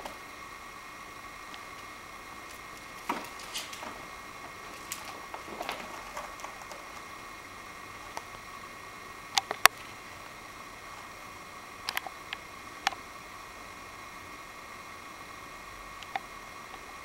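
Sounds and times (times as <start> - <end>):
faint hum: 0.0 - 17.0
kitten tapping and scuffing: 2.5 - 7.2.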